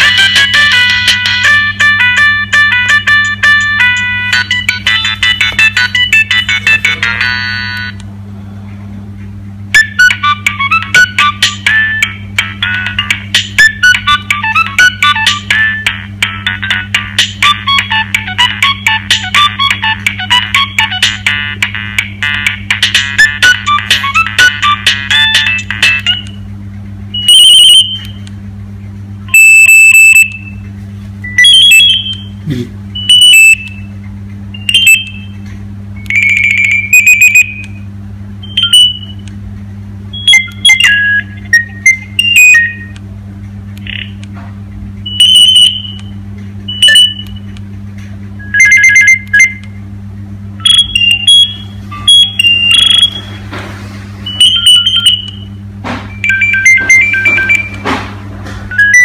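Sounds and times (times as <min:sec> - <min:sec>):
steady low hum: 0:00.0 - 0:59.0
mobile phone beeps and ringtones: 0:29.3 - 0:30.3, 0:33.0 - 0:33.6, 0:36.1 - 0:37.6, 0:45.1 - 0:46.0, 0:48.4 - 0:49.5, 0:50.7 - 0:53.3, 0:56.2 - 0:57.8.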